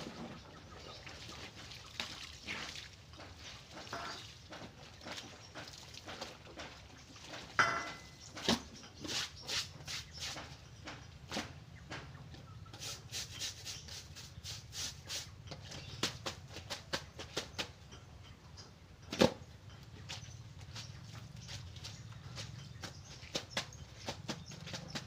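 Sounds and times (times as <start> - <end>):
water splashing and dripping: 0.0 - 8.7.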